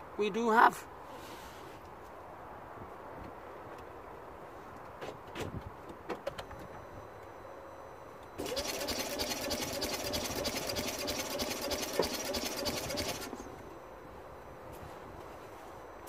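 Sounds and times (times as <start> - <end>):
starter motor cranking: 8.4 - 13.4.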